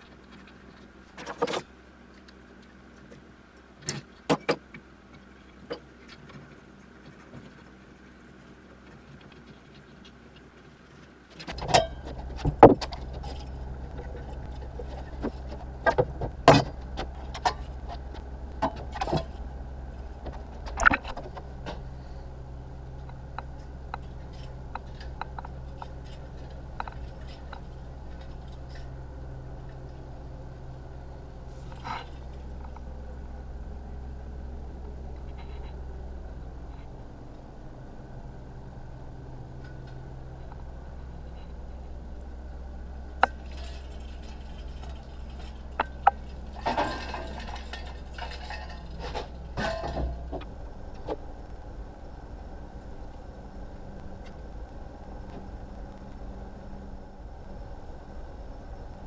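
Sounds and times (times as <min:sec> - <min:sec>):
low motor hum: 0:00.0 - 0:59.0
scrap metal clinking and clanking: 0:11.4 - 0:22.0, 0:22.9 - 0:30.1, 0:43.2 - 0:51.2.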